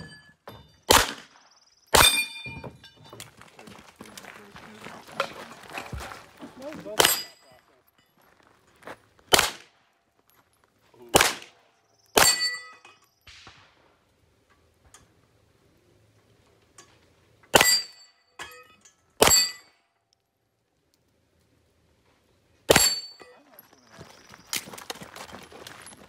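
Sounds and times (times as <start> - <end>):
pistol shots: 0.9 - 2.3, 7.0 - 7.4, 9.3 - 9.8, 11.1 - 11.6, 12.2 - 13.9.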